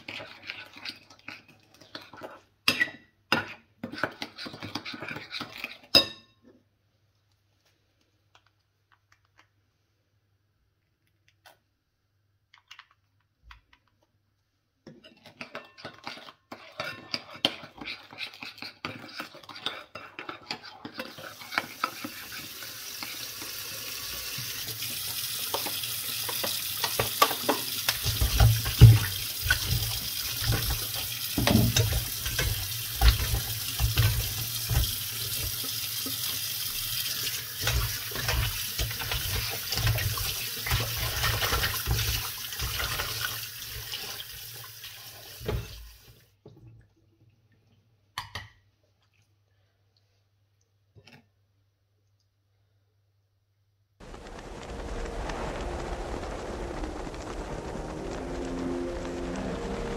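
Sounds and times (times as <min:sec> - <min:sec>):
utensil scraping a pan: 0:00.0 - 0:02.4, 0:03.4 - 0:06.0, 0:15.0 - 0:23.3
steady rushing hiss: 0:54.0 - 0:59.9.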